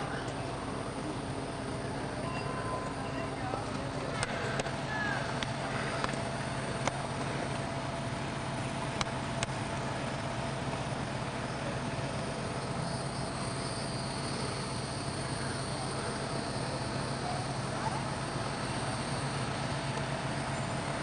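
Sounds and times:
low hum: 0:00.0 - 0:21.0
faint sharp clicks: 0:09.0 - 0:09.6.

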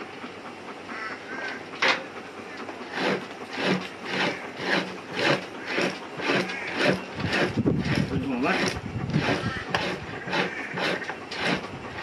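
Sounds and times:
knife scraping hide: 0:02.8 - 0:12.0.

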